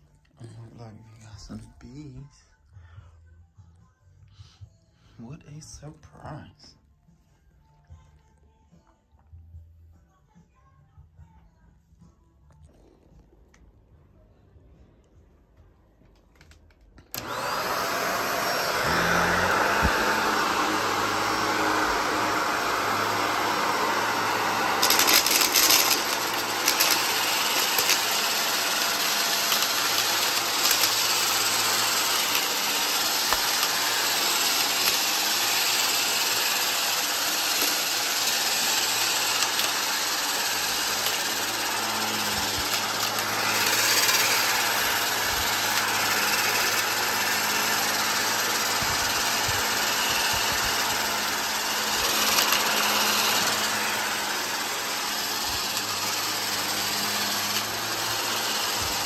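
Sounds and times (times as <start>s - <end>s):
vacuum cleaner motor running: 16.4s - 59.0s
dirt rattling up vacuum nozzle: 17.1s - 59.0s.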